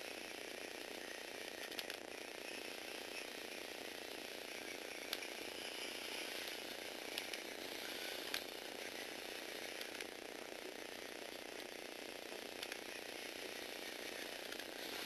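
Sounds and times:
toy robot motor whirring: 0.0 - 15.0
sharp clicks: 1.6 - 2.0, 6.4 - 7.5, 12.3 - 12.9.

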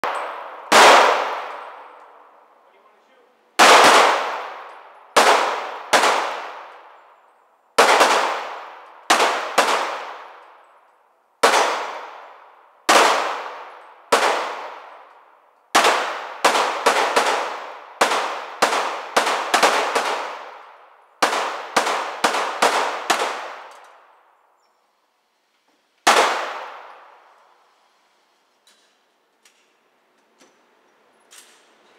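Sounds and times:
pistol shots echoing: 0.0 - 2.3, 3.6 - 7.0, 7.8 - 10.7, 11.4 - 24.2, 26.1 - 27.4.

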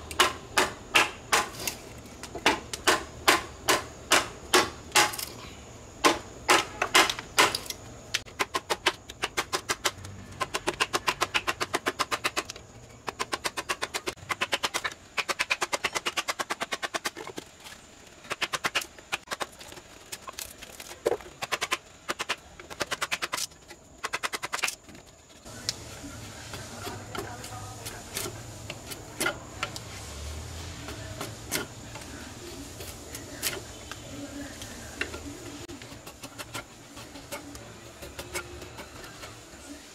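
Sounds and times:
hammer striking chisel into wood: 0.1 - 1.5, 2.4 - 5.2
blade shaving wood: 25.5 - 39.9.

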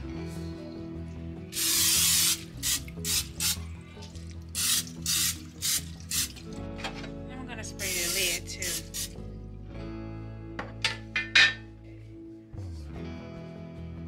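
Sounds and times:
soft background music: 0.0 - 14.0
cooking spray hissing: 1.6 - 3.6, 4.6 - 6.4, 8.6 - 9.2.

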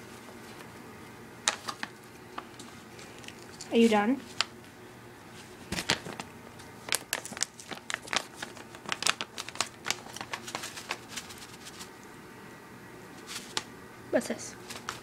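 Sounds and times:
bag crinkling and crackling: 5.6 - 11.9.

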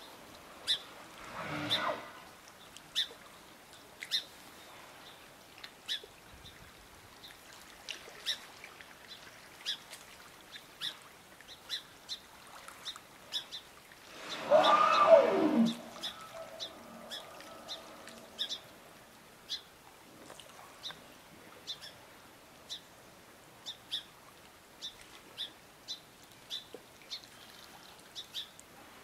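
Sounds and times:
animal call sliding down in pitch: 14.2 - 18.2.

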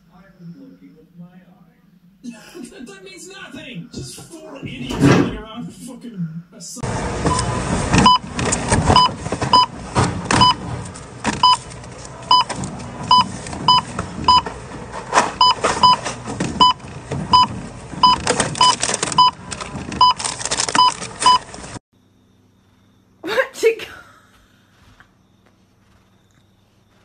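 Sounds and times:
barcode scanner beeping: 7.3 - 8.2, 11.4 - 11.6, 12.3 - 12.5, 13.1 - 14.5, 15.4 - 19.4, 20.0 - 21.5
packages rustling and knocking: 7.9 - 21.8.

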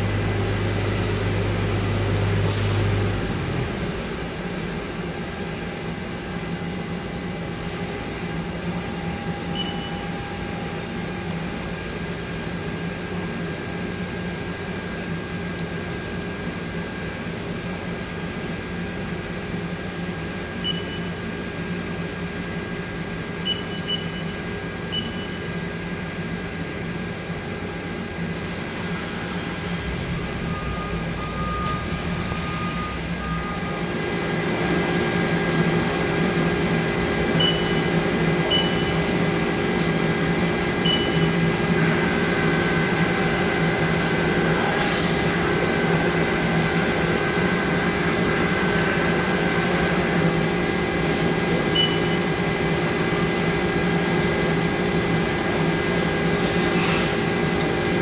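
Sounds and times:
short high keypad beeps: 9.6 - 10.0, 20.6 - 21.1, 23.5 - 24.3, 24.9 - 25.4, 37.4 - 37.9, 38.5 - 39.0, 40.8 - 41.4, 51.7 - 52.2
lathe machine hum: 25.8 - 58.0
steady machine tones: 28.7 - 39.6.

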